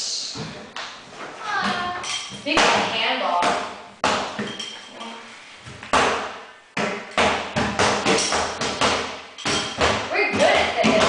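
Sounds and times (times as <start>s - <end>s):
thuds on rubber gym floor: 5.7s - 11.0s.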